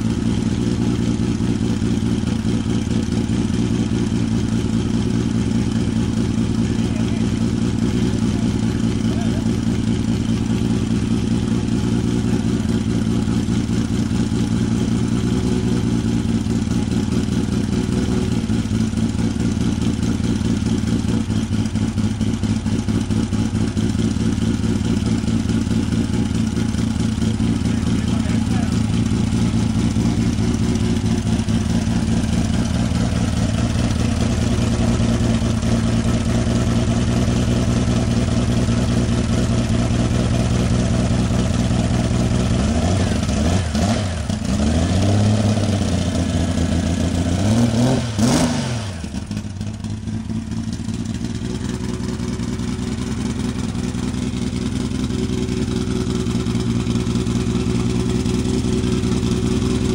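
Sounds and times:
car engine idling: 0:00.0 - 0:59.9
engine revving: 0:41.2 - 0:49.6.

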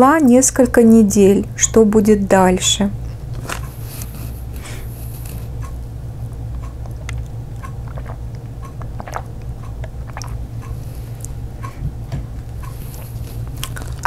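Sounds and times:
steady low hum: 0:00.0 - 0:14.0
mouth and swallowing clicks: 0:06.4 - 0:11.8, 0:12.4 - 0:14.0.

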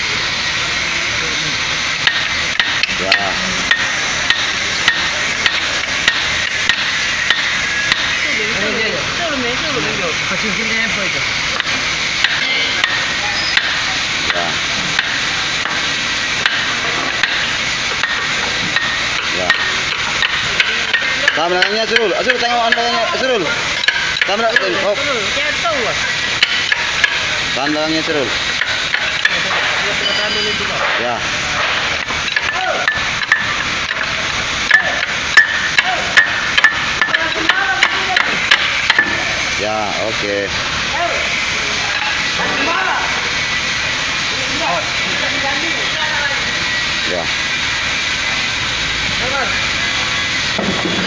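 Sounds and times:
steady hiss: 0:00.0 - 0:51.0
hammer striking steel bar: 0:02.0 - 0:08.2, 0:11.6 - 0:14.4, 0:15.0 - 0:22.8, 0:23.8 - 0:24.6, 0:31.6 - 0:39.3.

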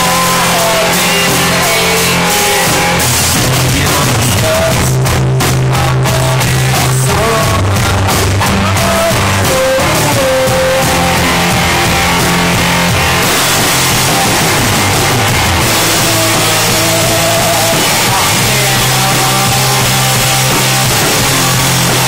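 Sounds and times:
distorted electric guitar: 0:00.0 - 0:22.0
drum kit playing: 0:00.0 - 0:22.0.

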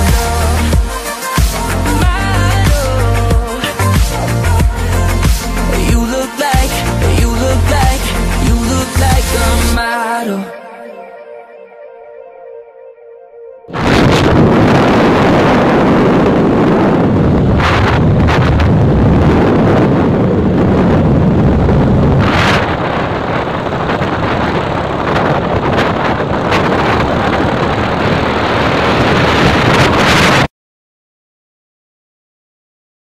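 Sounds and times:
road noise: 0:13.7 - 0:30.5
wind buffeting microphone: 0:13.7 - 0:30.5.

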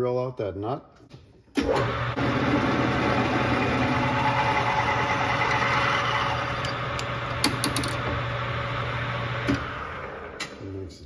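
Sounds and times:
lathe motor hum: 0:01.6 - 0:10.4.

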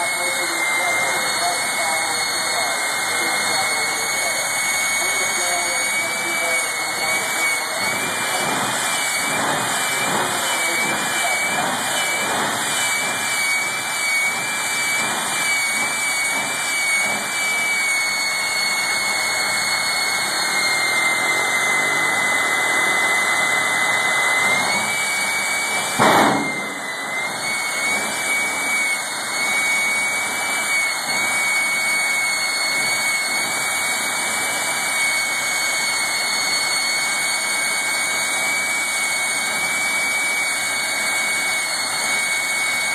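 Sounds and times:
jet turbine whine and roar: 0:00.0 - 0:42.9
sharp bang: 0:25.9 - 0:26.8.

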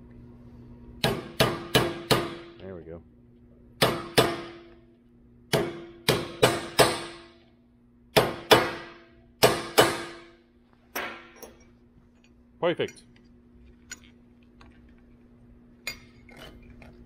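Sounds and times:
hammer striking metal chisel: 0:01.0 - 0:02.5, 0:05.5 - 0:07.3, 0:08.2 - 0:10.3.

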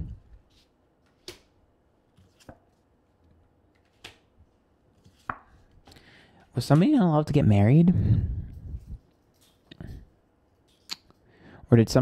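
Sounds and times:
cards snapping down: 0:01.1 - 0:01.5, 0:03.8 - 0:04.3.

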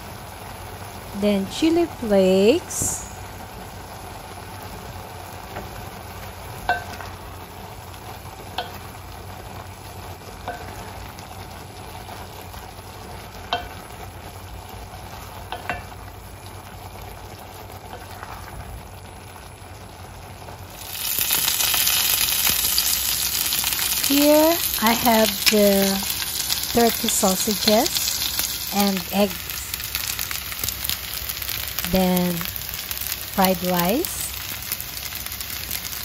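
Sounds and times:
loud frying sizzle in a pan: 0:00.0 - 0:36.0
noodles sizzling in a pot: 0:00.0 - 0:36.0.

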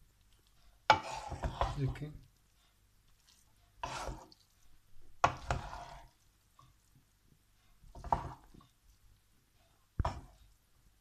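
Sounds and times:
wooden spatula scraping frying pan: 0:00.8 - 0:02.2, 0:03.3 - 0:04.5, 0:05.2 - 0:06.2, 0:07.8 - 0:08.7, 0:09.7 - 0:10.4.

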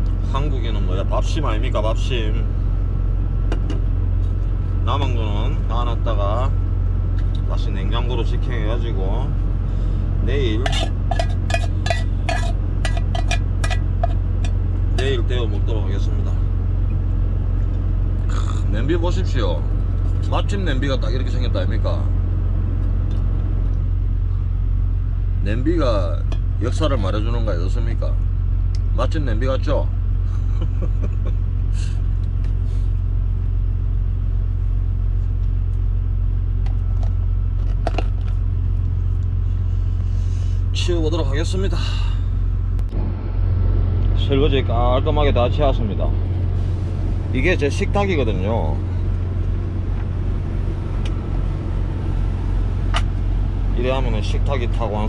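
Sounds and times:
diesel truck idling: 0:00.0 - 0:55.0
low engine hum: 0:00.0 - 0:55.0
metal spoon scraping a pot: 0:10.6 - 0:14.2
cookware clinking: 0:10.7 - 0:14.2.

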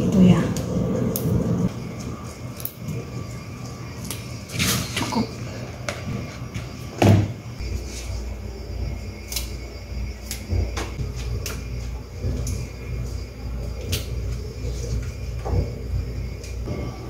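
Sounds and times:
steady low rumble: 0:00.0 - 0:04.5
plant stems snapping: 0:09.3 - 0:09.6.

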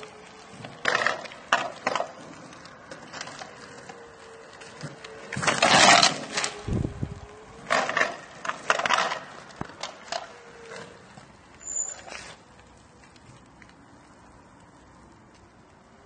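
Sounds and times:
small wheels crunching on asphalt: 0:00.0 - 0:16.0
electric motor whine: 0:02.7 - 0:08.4.

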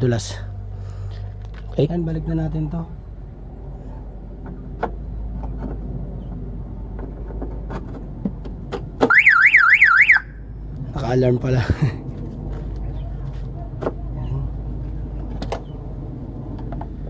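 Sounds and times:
car alarm siren warbling: 0:09.1 - 0:10.4.

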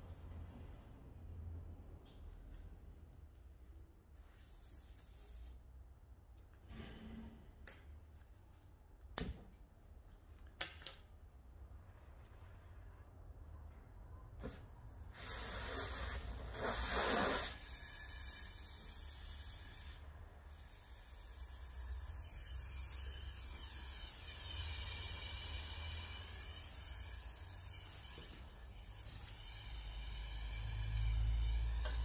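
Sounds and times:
gas torch flame hissing: 0:15.0 - 0:17.9.

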